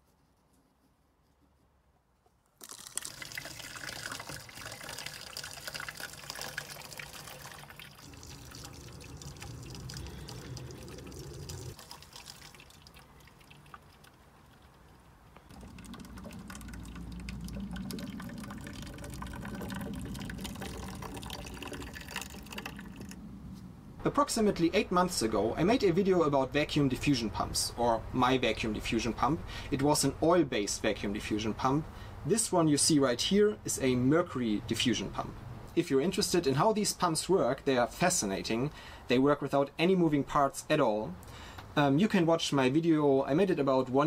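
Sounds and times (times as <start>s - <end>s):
liquid mercury splashing in glass: 2.6s - 14.1s, 15.5s - 23.2s.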